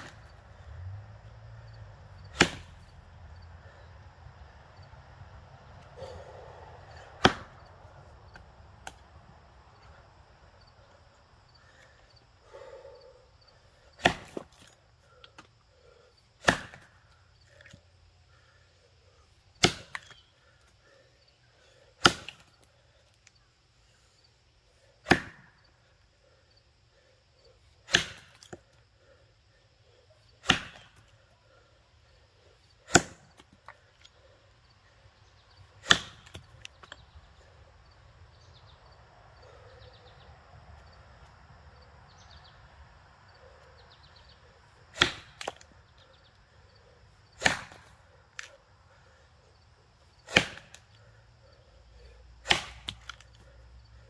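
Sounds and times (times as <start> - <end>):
axe chopping log: 2.3 - 2.9, 7.2 - 7.7, 14.0 - 14.8, 16.4 - 17.0, 19.6 - 20.2, 22.0 - 22.5, 25.0 - 25.6, 27.8 - 28.7, 30.4 - 31.1, 32.8 - 33.8, 35.8 - 37.0, 44.9 - 45.7, 47.4 - 48.5, 50.2 - 50.9, 52.4 - 53.4.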